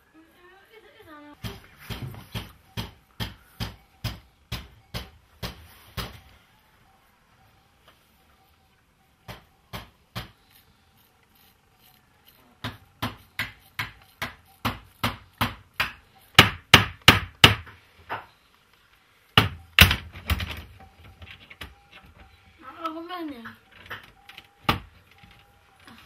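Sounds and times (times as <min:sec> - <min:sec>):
hammer tapping metal on stone: 0:12.6 - 0:18.3.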